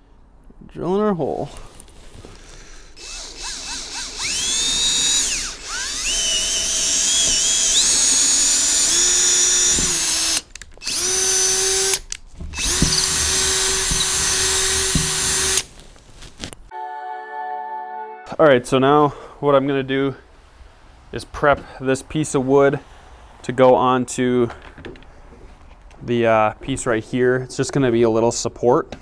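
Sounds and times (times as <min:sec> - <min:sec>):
cordless drill boring through board: 0:02.9 - 0:15.7.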